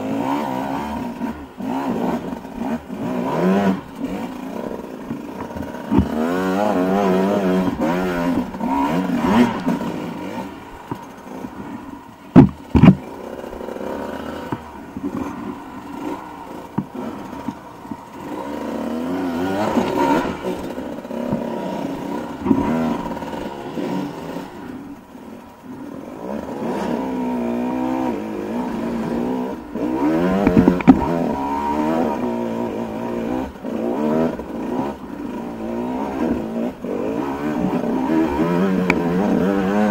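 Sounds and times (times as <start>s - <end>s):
dirt bike engine revving: 0.0s - 39.9s
sharp knocks: 12.3s - 13.0s.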